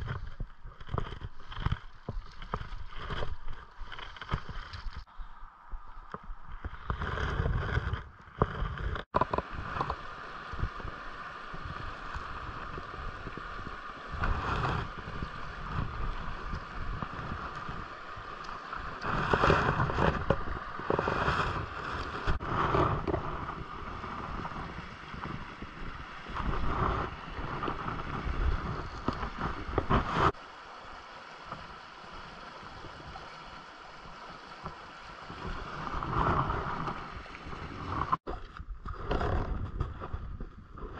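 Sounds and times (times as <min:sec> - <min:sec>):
river water over riffles: 0:00.0 - 0:40.9
wind gusting on microphone: 0:05.8 - 0:30.4.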